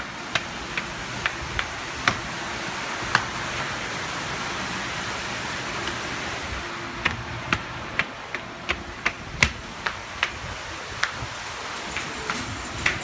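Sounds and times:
footsteps on hard paving: 0.0s - 3.7s, 6.9s - 13.0s
steady rushing hiss: 0.0s - 13.0s.

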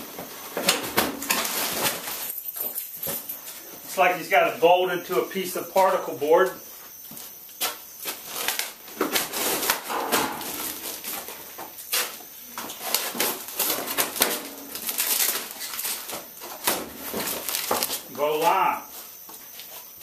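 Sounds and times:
cardboard and plastic wrap rustling: 0.2s - 2.4s, 8.0s - 9.9s, 10.6s - 18.1s
sharp cracks and knocks: 7.6s - 18.0s.

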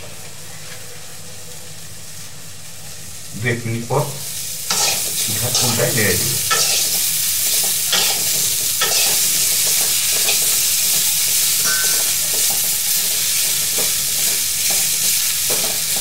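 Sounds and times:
vegetables sizzling in oil: 0.0s - 16.0s
spatula scraping pan: 4.7s - 10.6s.

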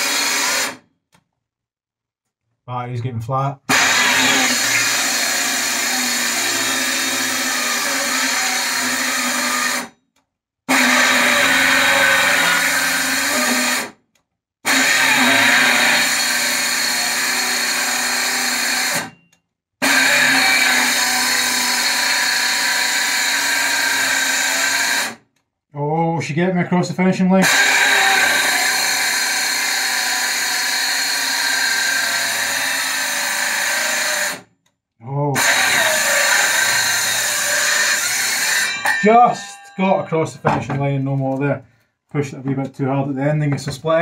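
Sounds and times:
circular saw cutting board: 3.7s - 9.9s, 35.4s - 41.4s.

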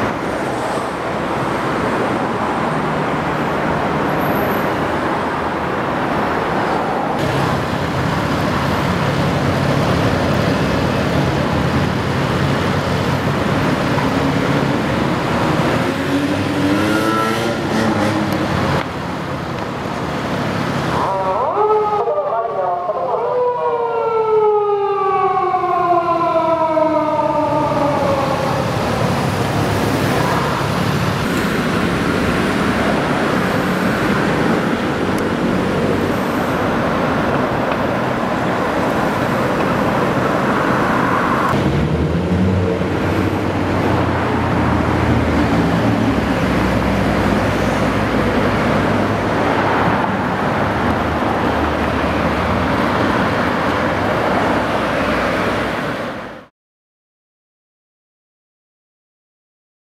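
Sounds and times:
city traffic: 0.0s - 56.5s
police siren wailing: 20.9s - 30.7s.

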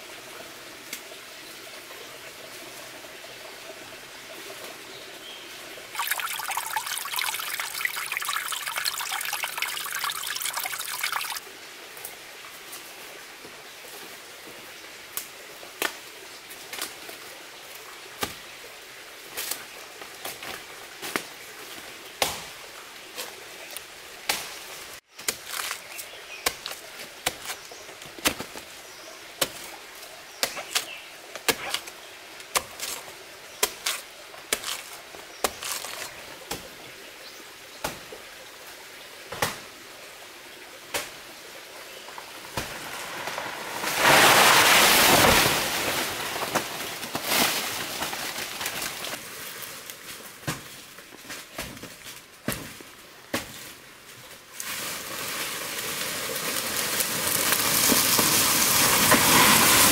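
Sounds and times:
loud rustling in undergrowth: 42.3s - 52.8s, 53.5s - 59.9s.

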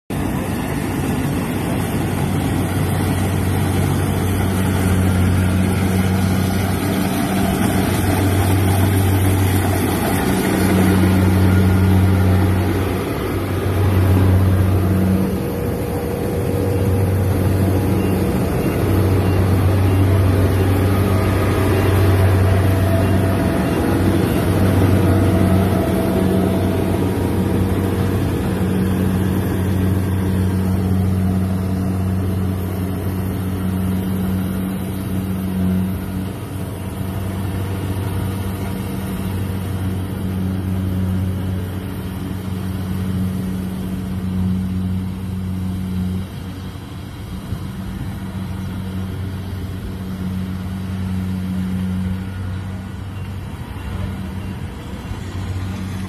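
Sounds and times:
combine harvester engine hum: 0.1s - 56.0s.

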